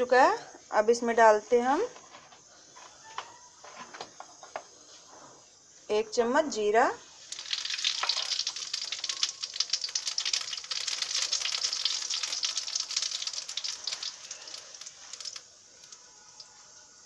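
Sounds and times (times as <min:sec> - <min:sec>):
seeds crackling in hot oil: 0:06.8 - 0:17.0.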